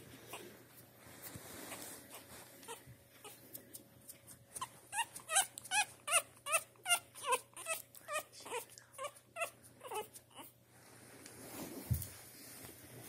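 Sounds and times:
puppy whimpering: 0:00.0 - 0:00.6, 0:01.5 - 0:03.4, 0:04.5 - 0:10.6.

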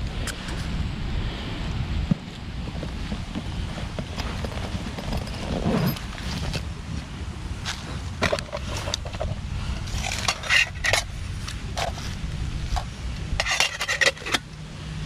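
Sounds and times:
rucksack rustling and scraping: 0:02.0 - 0:14.5.

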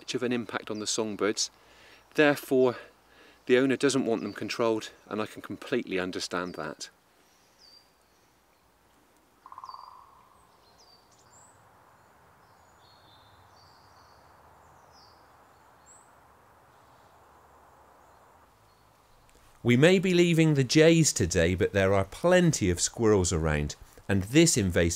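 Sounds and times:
small birds chirping: 0:00.0 - 0:19.6.

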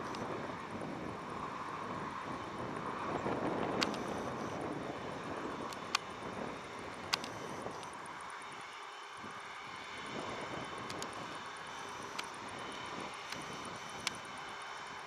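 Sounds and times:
jet engine whine and rumble: 0:00.0 - 0:15.0
sharp clicks: 0:03.7 - 0:04.6, 0:05.6 - 0:06.1, 0:06.9 - 0:08.0, 0:10.8 - 0:11.2, 0:11.8 - 0:12.4, 0:13.1 - 0:14.4.

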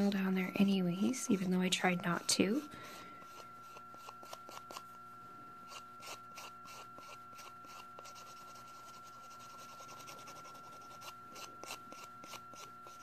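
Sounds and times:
nail file rasping: 0:02.1 - 0:04.9, 0:05.6 - 0:13.0.

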